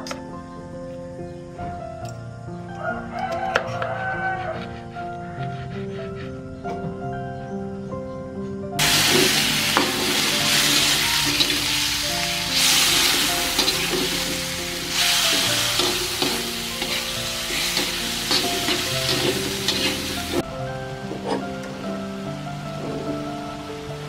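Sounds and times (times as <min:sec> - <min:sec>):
meat sizzling in a wok: 0:08.8 - 0:20.5.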